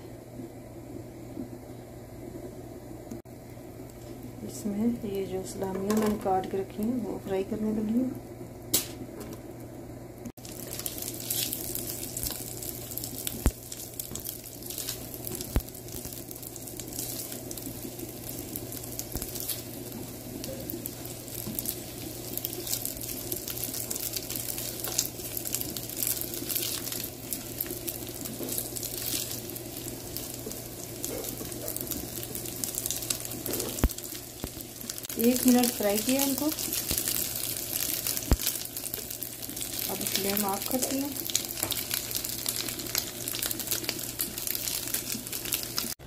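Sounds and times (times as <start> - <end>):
steady low hum: 0.0 - 44.2
meat sizzling in butter: 10.4 - 46.0.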